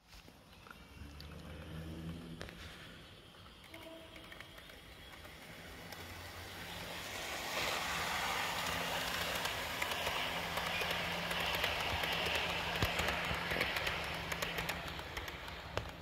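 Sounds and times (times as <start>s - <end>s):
model train wheels rattling on rail: 3.5s - 16.0s.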